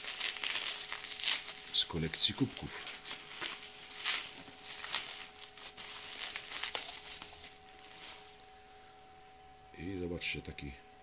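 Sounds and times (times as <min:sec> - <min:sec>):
bubble wrap crinkling: 0:00.0 - 0:08.5.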